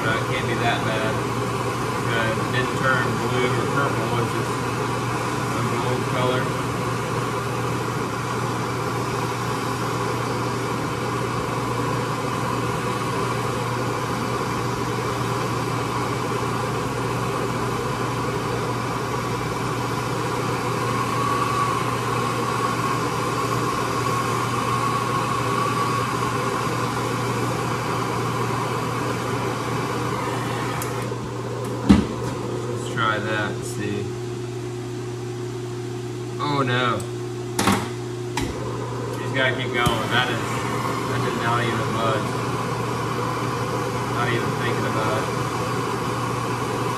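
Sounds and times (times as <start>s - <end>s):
gas torch hissing: 0.0s - 34.1s, 37.6s - 46.9s
low machine hum: 0.0s - 46.9s.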